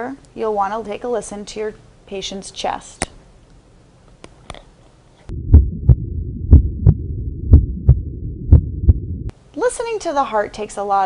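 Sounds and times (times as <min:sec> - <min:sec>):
heartbeat through stethoscope: 0:05.3 - 0:09.3
low hum: 0:05.3 - 0:09.3.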